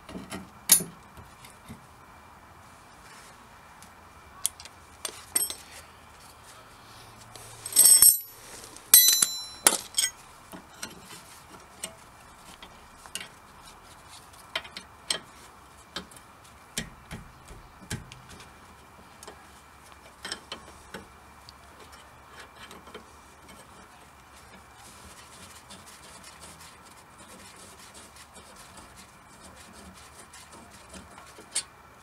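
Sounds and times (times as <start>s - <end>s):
ringing metal clinks: 5.4s - 5.6s, 7.7s - 8.4s, 9.0s - 10.2s.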